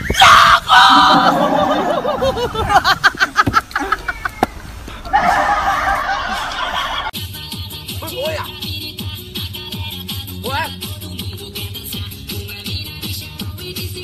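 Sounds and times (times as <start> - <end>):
loud voices: 0.0 - 7.1
person laughing: 0.8 - 4.4, 5.1 - 7.1.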